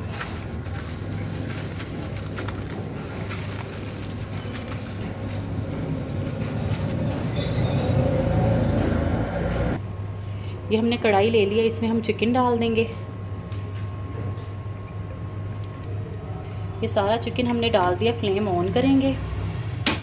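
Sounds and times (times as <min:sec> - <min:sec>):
cling film crinkling: 0:00.0 - 0:08.2
steady low hum: 0:00.0 - 0:19.7.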